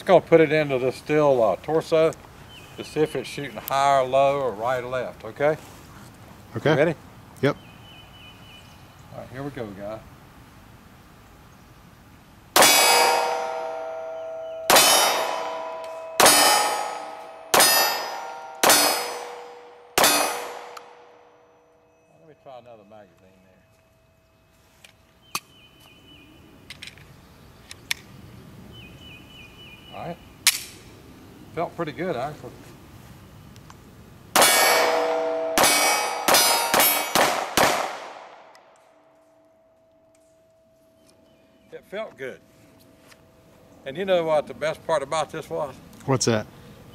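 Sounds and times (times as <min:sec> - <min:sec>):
pistol shots: 0:12.6 - 0:21.1, 0:34.4 - 0:38.6
steel target ringing: 0:12.6 - 0:22.8, 0:34.4 - 0:38.4.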